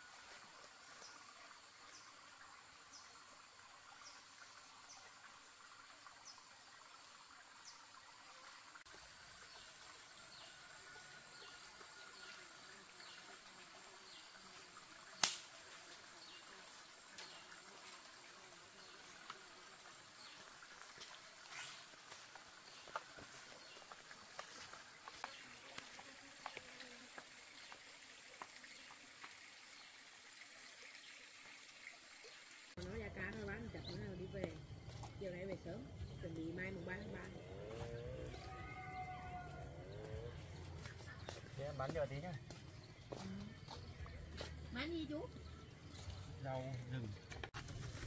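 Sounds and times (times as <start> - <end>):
insect and bird chirps: 0.0 - 48.0
sharp snap: 15.2 - 15.6.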